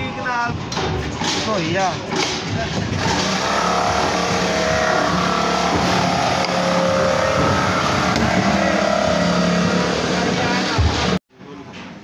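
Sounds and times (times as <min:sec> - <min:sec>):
high-pitched machine whine: 0:03.0 - 0:11.2
machine droning hum: 0:03.0 - 0:11.2.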